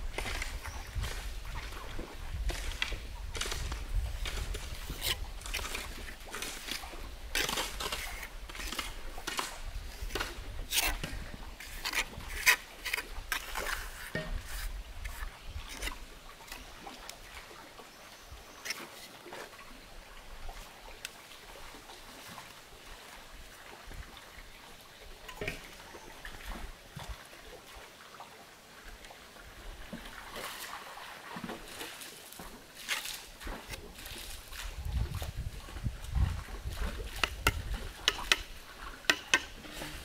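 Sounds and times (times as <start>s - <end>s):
trowel scraping mortar on bricks: 10.7s - 16.0s.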